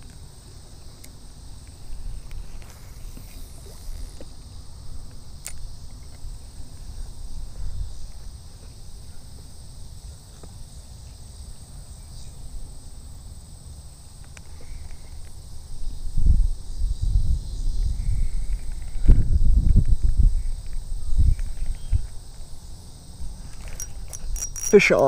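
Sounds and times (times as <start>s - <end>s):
high-pitched insect buzz: 0.0s - 25.0s
low wind rumble: 15.5s - 24.6s.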